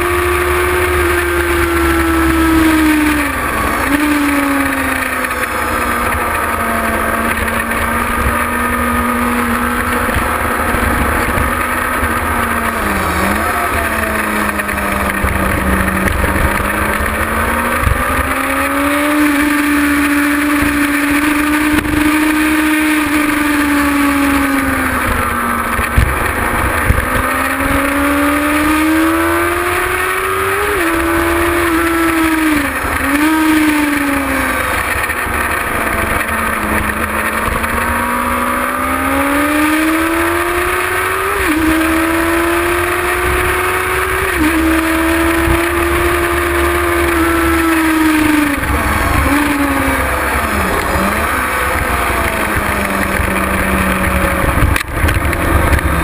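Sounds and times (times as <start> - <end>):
motorcycle engine revving: 0.0 - 56.0
wind rushing on microphone: 47.3 - 56.0.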